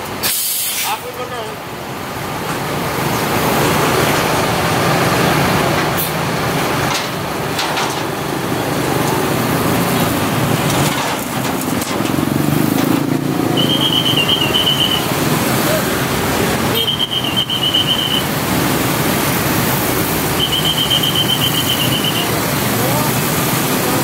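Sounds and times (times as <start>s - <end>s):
bus diesel engine running: 0.0s - 24.0s
motorcycle and road traffic: 0.0s - 24.0s
high trilling whistle: 13.5s - 15.1s, 16.7s - 18.3s, 20.3s - 22.3s.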